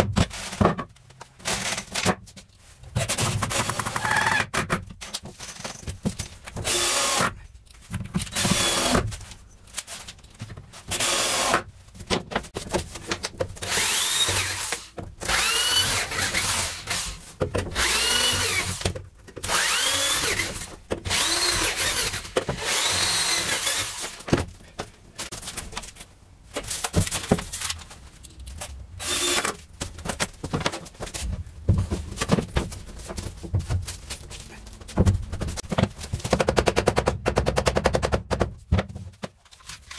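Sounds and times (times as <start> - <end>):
cordless drill driving screws: 13.6 - 17.1, 17.8 - 18.8, 19.4 - 24.1, 29.0 - 29.5.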